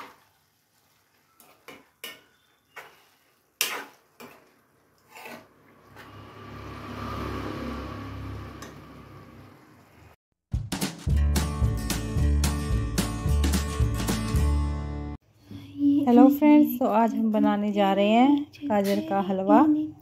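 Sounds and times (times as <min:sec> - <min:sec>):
spoon scraping steel pan: 0:01.4 - 0:06.2
music: 0:10.5 - 0:15.2.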